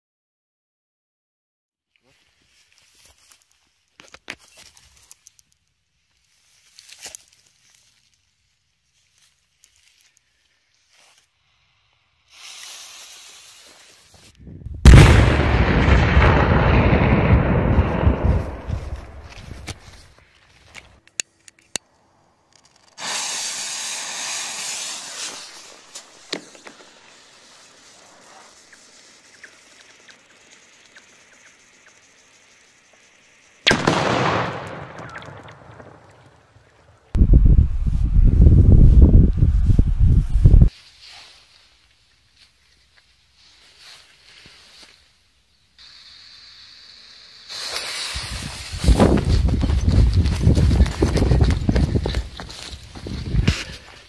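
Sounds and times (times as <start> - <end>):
fuse hiss: 7.6 - 14.4, 22.9 - 34.6, 40.7 - 54.0
firecracker bang: 14.8 - 19.8, 33.7 - 36.4.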